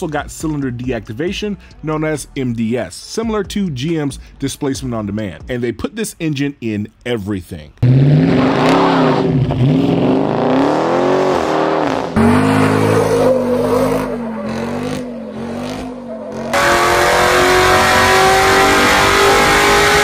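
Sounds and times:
car engine revving: 0:07.8 - 0:20.0.

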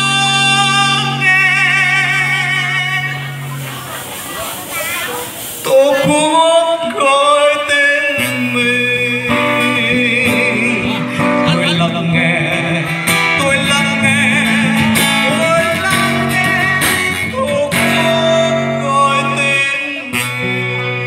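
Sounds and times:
man singing into a microphone: 0:00.0 - 0:04.0, 0:05.6 - 0:21.0
acoustic guitar: 0:00.0 - 0:21.0.

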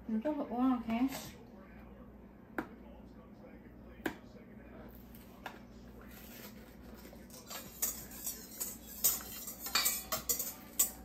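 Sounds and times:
utensils clinking against dishes: 0:06.1 - 0:11.0.

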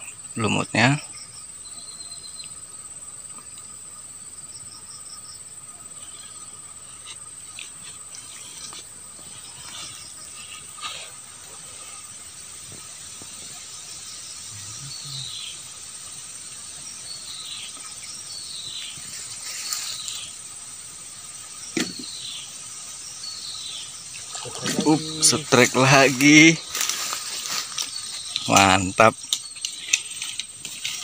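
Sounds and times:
insects shrilling: 0:00.0 - 0:31.0.

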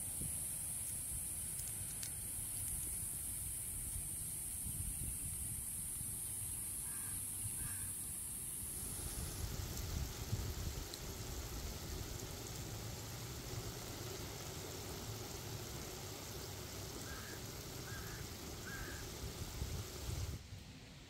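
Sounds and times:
short bird calls: 0:06.8 - 0:08.0, 0:17.0 - 0:19.2
food sizzling in a wok: 0:08.4 - 0:20.4.

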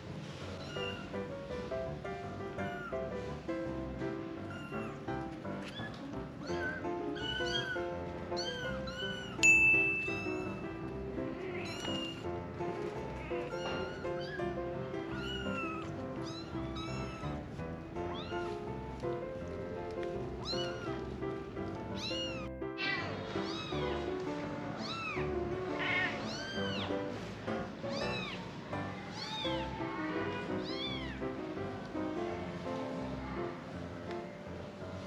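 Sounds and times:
kittens mewing: 0:00.5 - 0:01.2, 0:04.4 - 0:17.5, 0:20.3 - 0:21.1, 0:22.0 - 0:24.1, 0:24.7 - 0:27.0, 0:27.9 - 0:31.4
background music: 0:01.0 - 0:35.0.

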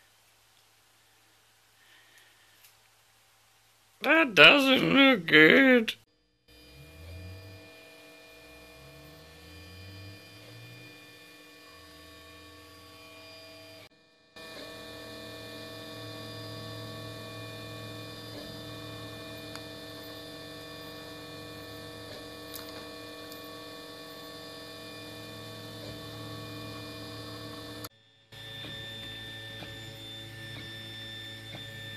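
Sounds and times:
electrical hum: 0:06.6 - 0:31.9.

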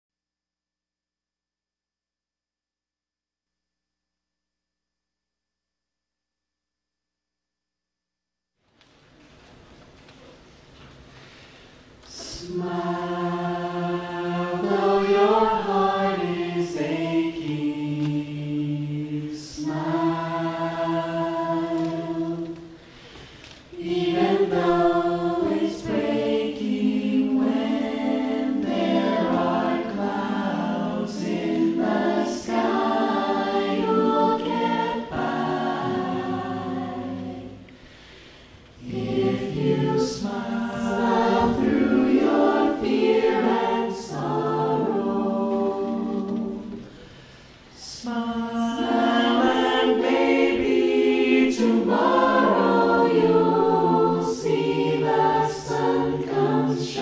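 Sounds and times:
choir singing in harmony: 0:12.1 - 0:23.1, 0:23.7 - 0:57.0.

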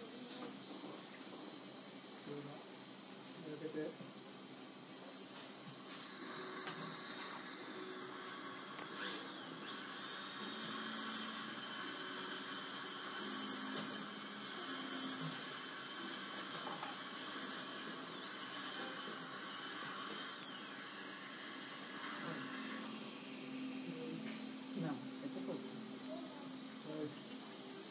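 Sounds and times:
dentist's drill whining: 0:05.6 - 0:26.0.

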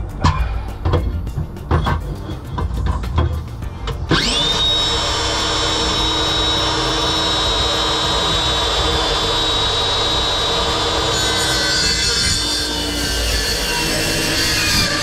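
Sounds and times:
power cutting tool whining: 0:04.0 - 0:15.0.

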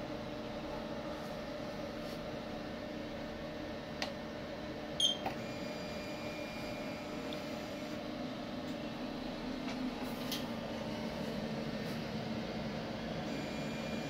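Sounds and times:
printer-cutter humming: 0:05.2 - 0:14.0
faint high whine: 0:12.6 - 0:14.0.

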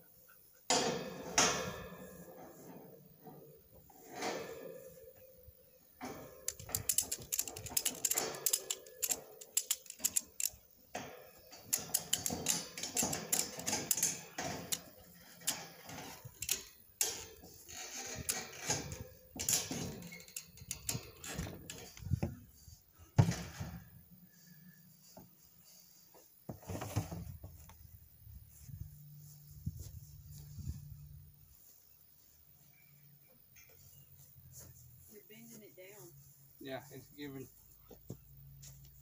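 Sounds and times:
ratchet strap pawl clicking: 0:06.5 - 0:10.6.

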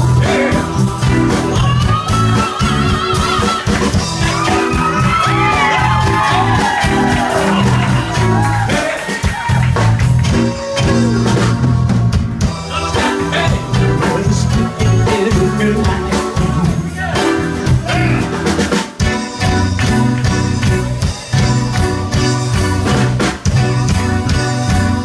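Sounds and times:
person singing: 0:00.0 - 0:09.5, 0:12.6 - 0:18.5
bass line: 0:00.0 - 0:25.0
drum kit beat: 0:00.0 - 0:25.0
keyboard: 0:00.0 - 0:25.0.

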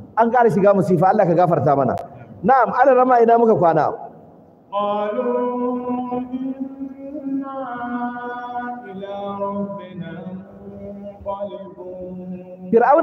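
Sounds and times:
man chanting melodic recitation: 0:04.7 - 0:13.0.

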